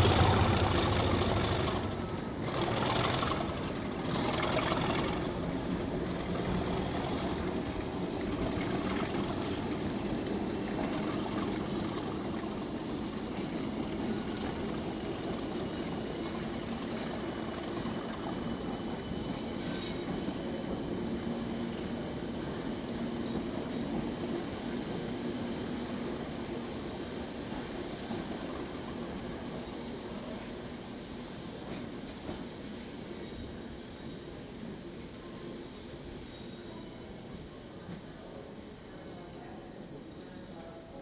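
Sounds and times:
diesel locomotive engine growling: 0.0 - 36.2.

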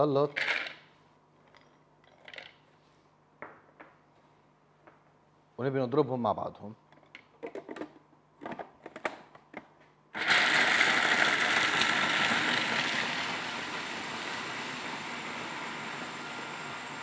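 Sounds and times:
food processor chopping nuts: 10.2 - 17.0.

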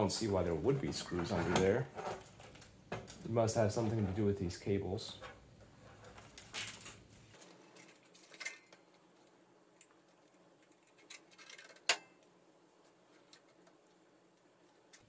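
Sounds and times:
knocks and rustles of handling: 0.0 - 15.0.

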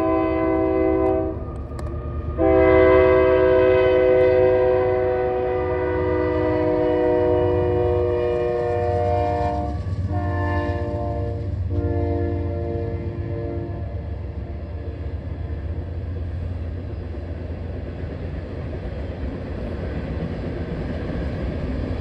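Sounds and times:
locomotive air horn blasts: 0.0 - 1.4, 2.2 - 15.0
train rumbling: 0.0 - 22.0.

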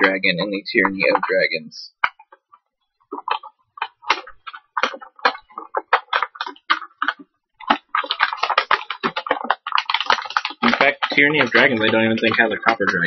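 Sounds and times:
packaging crinkling: 3.1 - 13.0
plastic packaging clicks and crackles: 4.1 - 13.0.

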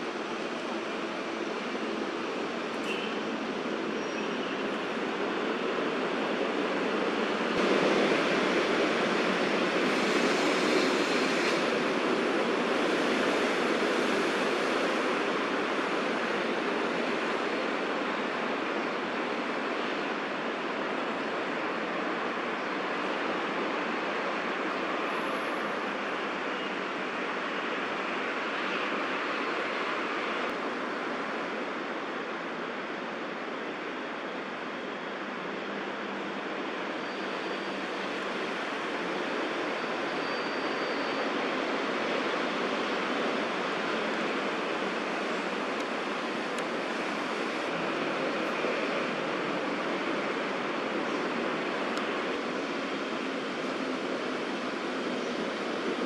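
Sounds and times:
distant city traffic hum: 0.0 - 56.0.

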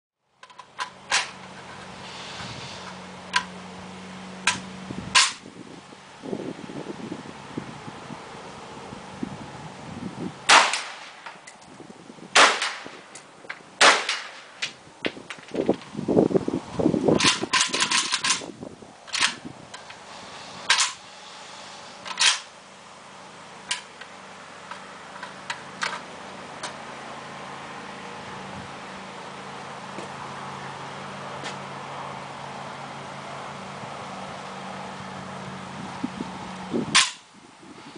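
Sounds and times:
gun handling clicks and knocks: 0.4 - 1.8, 12.6 - 15.9, 17.2 - 18.5, 19.1 - 20.0, 20.7 - 21.0, 22.0 - 22.5, 23.7 - 24.1, 24.7 - 26.8
gunshots with echo: 10.5 - 11.2, 12.4 - 13.0.

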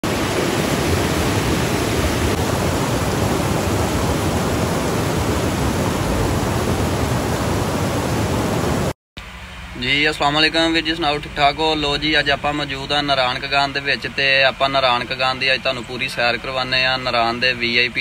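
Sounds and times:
river rapids rushing: 0.0 - 8.9.

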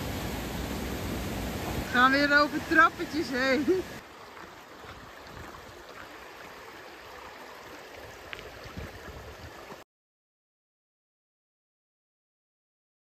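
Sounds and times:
river flowing over stones: 0.0 - 9.8.

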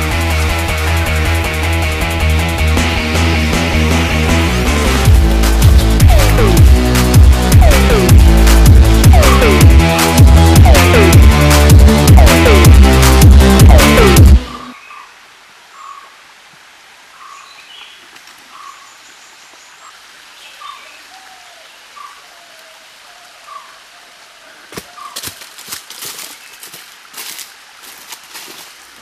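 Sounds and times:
bird calling: 14.4 - 16.1, 17.2 - 25.5
footsteps on dry leaves: 24.7 - 29.0.

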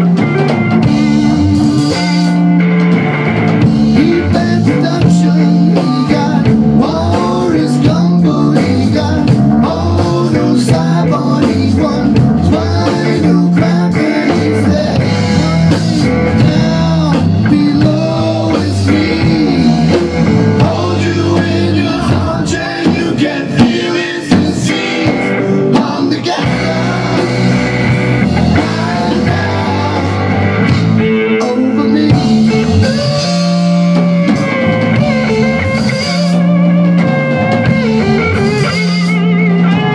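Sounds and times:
drum kit: 0.0 - 39.9
electric bass: 0.0 - 39.9
electric guitar: 0.0 - 39.9
man singing into a microphone: 3.9 - 27.6, 28.5 - 30.6, 31.3 - 33.6.

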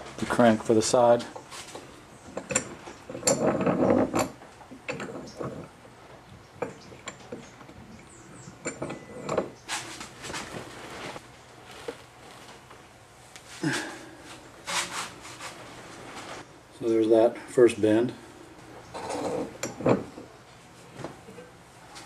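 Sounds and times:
metal clicks knocks and scrapes: 1.3 - 5.8, 6.5 - 10.4, 19.0 - 20.3.

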